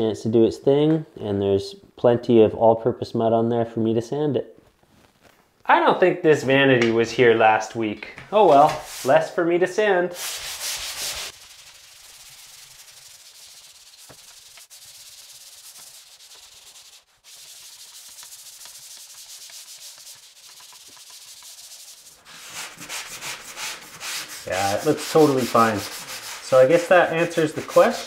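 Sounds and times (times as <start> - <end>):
pole sander rasping on drywall: 10.1 - 28.0.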